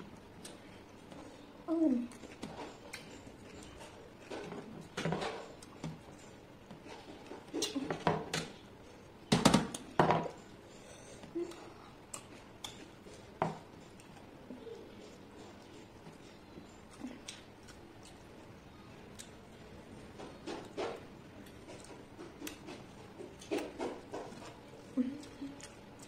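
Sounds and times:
chewing and mouth sounds: 11.2s - 19.4s.

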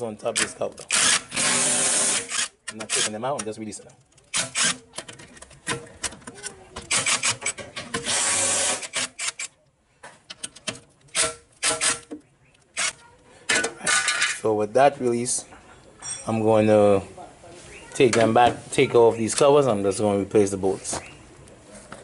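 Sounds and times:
cordless power tool bursts: 0.9s - 2.5s, 8.0s - 9.4s.

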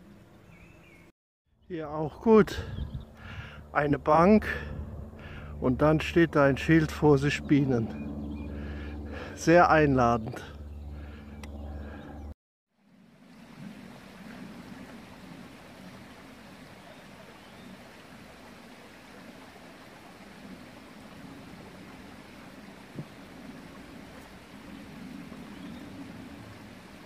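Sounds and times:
brook flowing: 12.8s - 27.0s.

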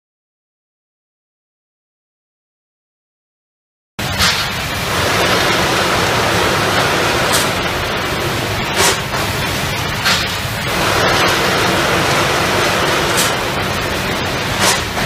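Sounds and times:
bagging machine running: 4.0s - 15.0s
machine clicks: 4.0s - 15.0s
short bursts of hiss: 4.0s - 15.0s.

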